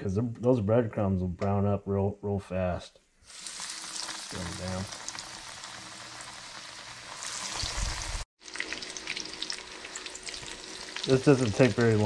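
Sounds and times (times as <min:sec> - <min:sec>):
fish frying in hot oil: 0:03.2 - 0:12.0.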